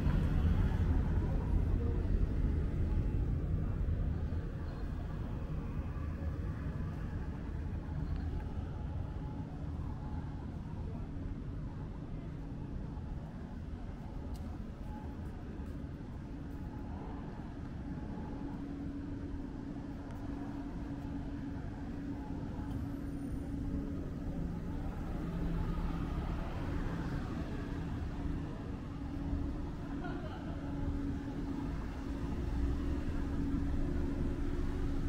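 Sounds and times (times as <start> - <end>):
vehicle engine humming: 0.0 - 8.6, 19.3 - 35.0
road noise: 0.0 - 35.0.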